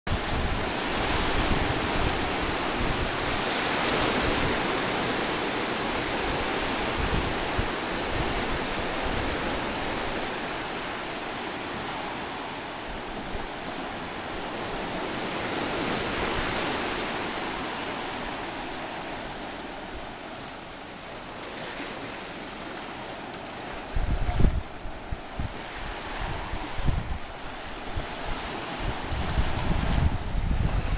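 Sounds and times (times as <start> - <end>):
wind buffeting microphone: 0.1 - 5.2, 5.9 - 10.7, 23.8 - 30.9
ocean waves breaking on beach: 0.1 - 30.9.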